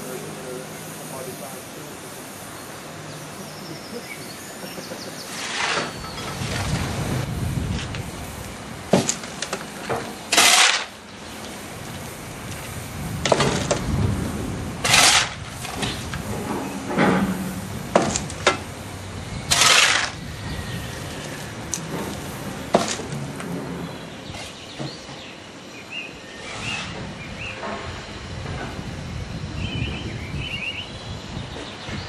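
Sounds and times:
hand tools scraping ash: 0:05.2 - 0:07.0, 0:09.0 - 0:13.9, 0:14.8 - 0:18.6, 0:19.4 - 0:23.2
sharp metallic knocks: 0:14.8 - 0:18.7.

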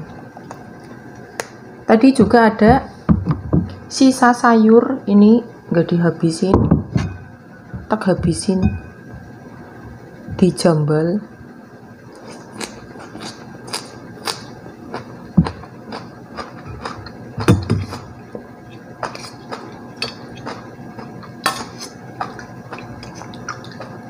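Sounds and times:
low dull thuds: 0:02.2 - 0:03.8, 0:06.6 - 0:09.4
metal spoon clinking in bowl: 0:08.6 - 0:09.0
chewing: 0:12.2 - 0:18.1, 0:18.7 - 0:24.0.

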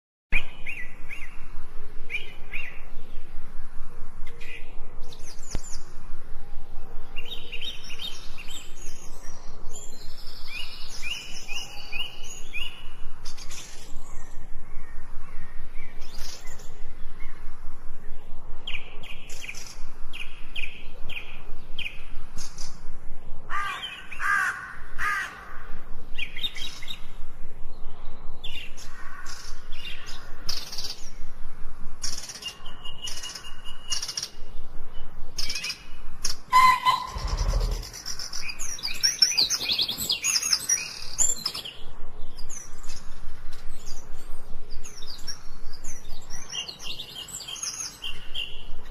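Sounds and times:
wild birds chirping: 0:00.4 - 0:48.9
louder lower bird call: 0:36.5 - 0:38.1.

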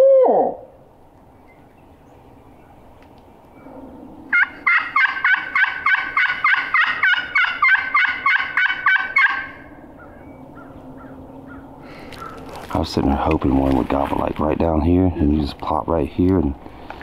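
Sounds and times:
turkey call yelps: 0:00.0 - 0:00.8, 0:04.3 - 0:12.6.

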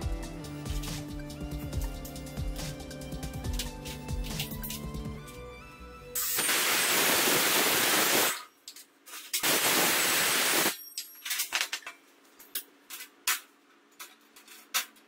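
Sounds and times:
circular saw cutting steel sheet: 0:06.2 - 0:08.4.

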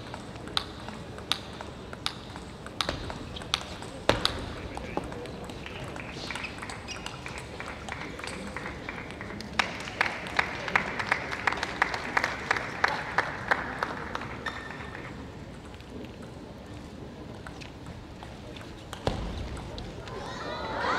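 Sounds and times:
sharp regular claps: 0:02.0 - 0:15.1
crowd applauding: 0:05.6 - 0:15.3.

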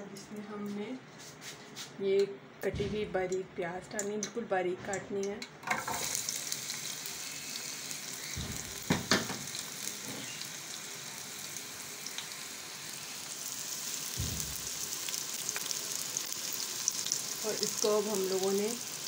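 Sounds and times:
onions sizzling in oil: 0:05.7 - 0:19.0
sharp knocks: 0:08.4 - 0:09.4, 0:14.2 - 0:14.7.

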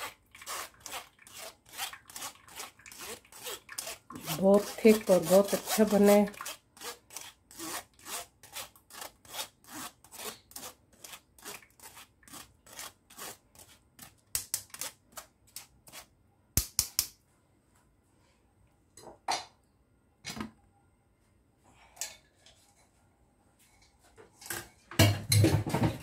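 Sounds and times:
spoon scraping metal strainer: 0:00.0 - 0:13.8.

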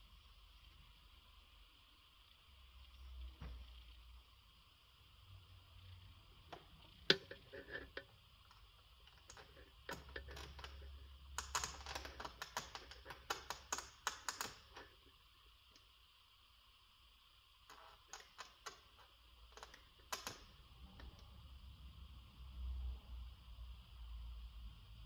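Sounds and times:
faint steady hiss: 0:00.0 - 0:25.0
plastic clicks and crackles: 0:06.5 - 0:15.0, 0:17.7 - 0:20.6.

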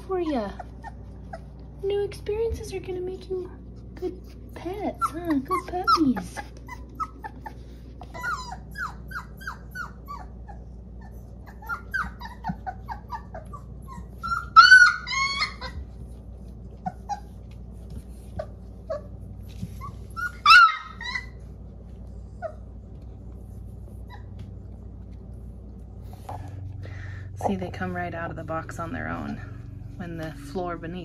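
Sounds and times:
puppies whimpering: 0:00.0 - 0:02.0, 0:03.6 - 0:25.2
puppy yelping cries: 0:00.4 - 0:01.7, 0:04.9 - 0:17.6, 0:18.4 - 0:21.6.

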